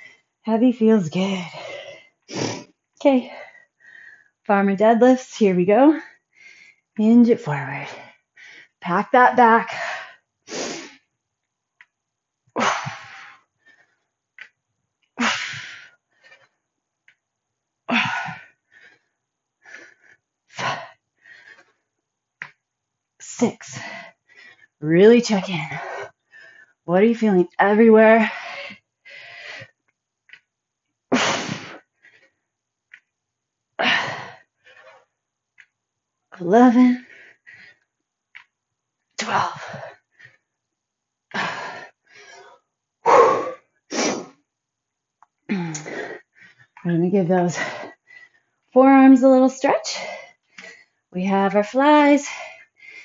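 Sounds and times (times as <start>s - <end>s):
woman breathing hard: 28.3s - 30.4s, 41.3s - 44.4s, 52.3s - 53.0s.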